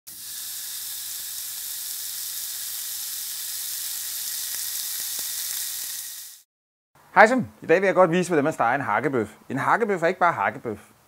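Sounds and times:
burger sizzling on a grill: 0.1s - 6.5s.

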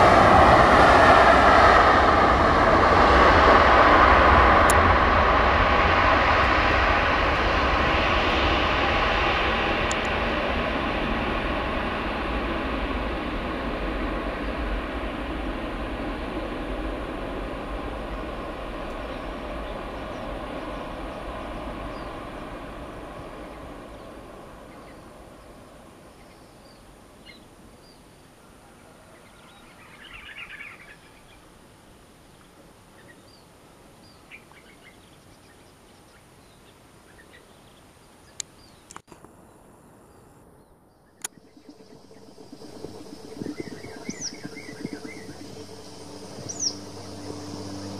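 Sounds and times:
jet engines running: 0.0s - 27.2s, 41.2s - 47.9s
birds chirping: 32.4s - 47.9s.

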